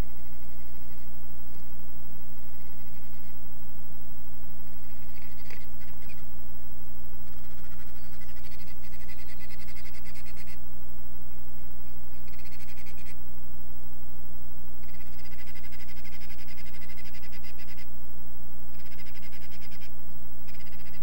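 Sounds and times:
owls rattling trilling calls: 0.0 - 1.1, 2.4 - 3.4, 4.6 - 6.3, 7.2 - 10.6, 12.1 - 13.2, 14.8 - 17.9, 18.7 - 21.0
steady low hum: 0.0 - 21.0.

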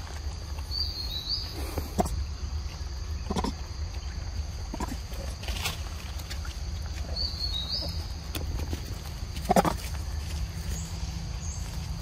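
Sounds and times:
bird chirps: 0.6 - 4.3, 7.0 - 8.4.

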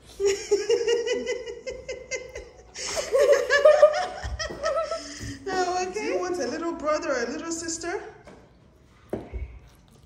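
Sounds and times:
girls giggling: 0.0 - 6.3.

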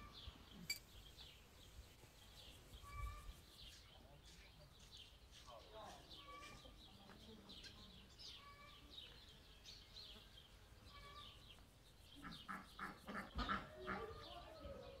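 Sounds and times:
harsh calls of larger birds: 12.1 - 14.4.

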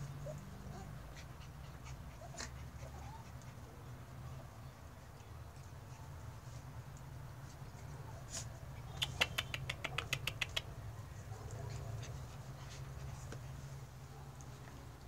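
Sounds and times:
sharp clicks and taps: 9.0 - 10.7.

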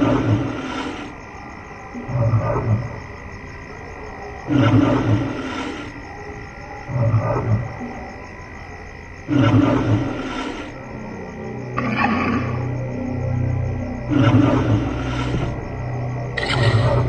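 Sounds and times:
deep animal roars: 0.0 - 1.2, 1.9 - 3.2, 4.4 - 6.2, 6.8 - 8.2, 9.2 - 17.0.

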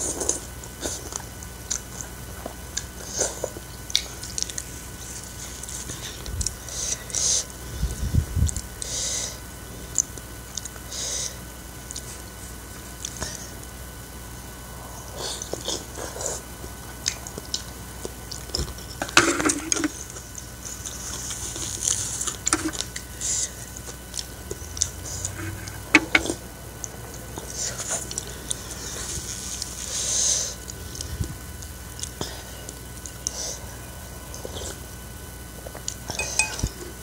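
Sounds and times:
chewing and slurping: 15.0 - 35.0
utensils clicking against bowl: 36.1 - 36.7.

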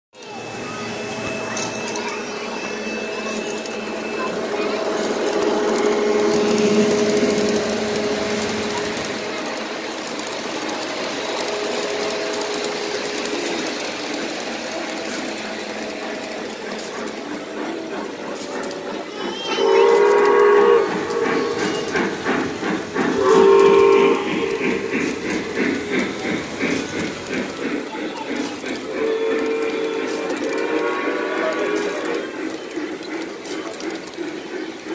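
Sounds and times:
model trains rumbling on track: 0.1 - 34.9
model steam locomotive whistle: 0.5 - 9.7, 19.4 - 22.0, 23.1 - 25.2, 28.8 - 32.4.

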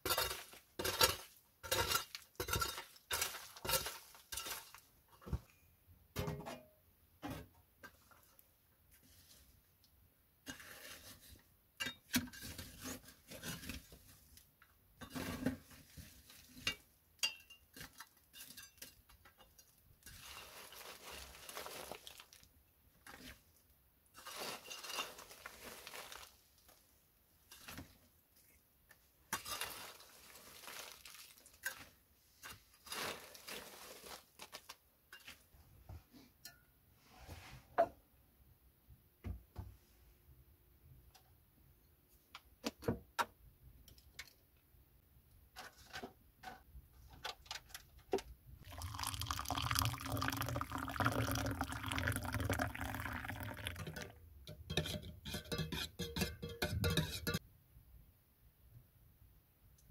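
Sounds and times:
metal scoop clinking and scraping: 0.0 - 4.9, 16.4 - 22.4, 24.2 - 26.3, 29.3 - 35.4, 53.8 - 57.4
wood chips rustling: 20.1 - 22.5, 24.2 - 26.8, 29.4 - 31.9, 32.8 - 34.8.

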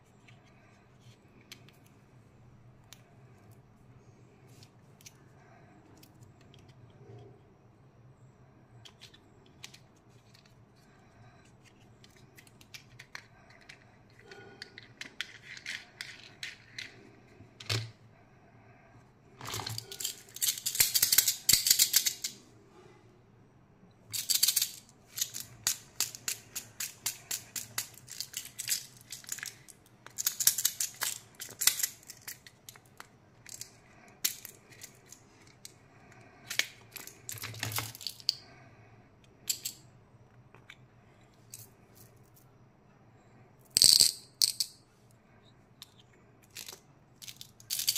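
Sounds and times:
small candies rattling in plastic case: 19.5 - 22.3, 24.1 - 35.6, 46.5 - 47.9.

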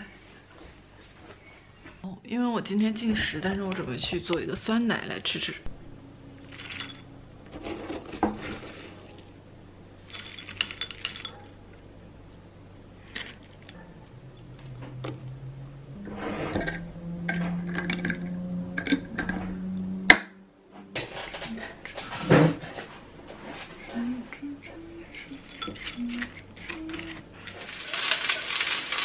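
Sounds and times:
granola rustling: 26.0 - 29.0.

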